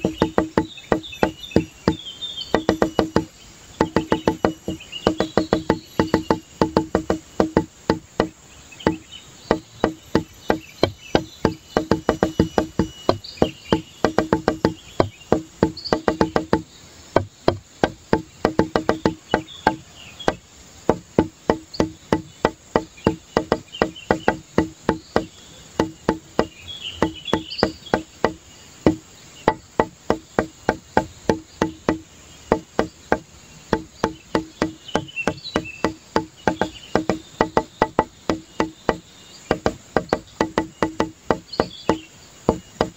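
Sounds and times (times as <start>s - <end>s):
pitched wood-block taps: 0.0s - 42.9s
faint high chirps: 8.6s - 16.7s.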